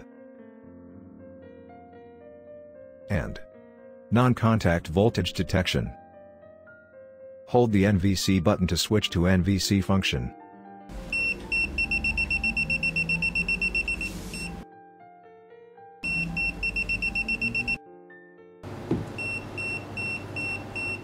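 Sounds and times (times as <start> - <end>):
soft background music: 0.0 - 21.0
multimeter buzzer beeping: 11.0 - 14.6, 16.0 - 17.8, 19.2 - 21.0.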